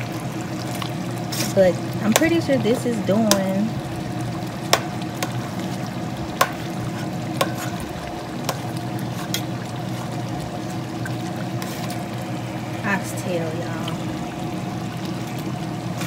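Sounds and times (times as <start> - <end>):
gravy sloshing: 0.0 - 16.0
steady low hum: 0.0 - 16.0.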